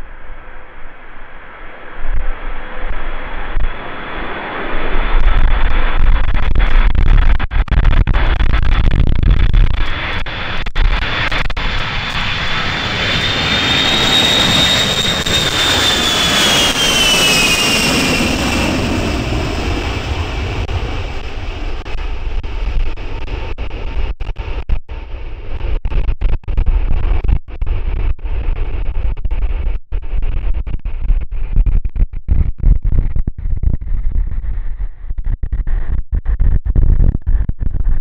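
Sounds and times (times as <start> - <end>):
jet aircraft roar: 0.0 - 26.4
high jet engine whine: 0.0 - 26.6.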